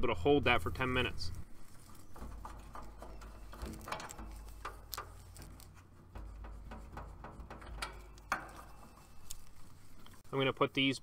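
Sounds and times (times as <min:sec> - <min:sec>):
clicks of brass fittings: 0:01.9 - 0:10.2.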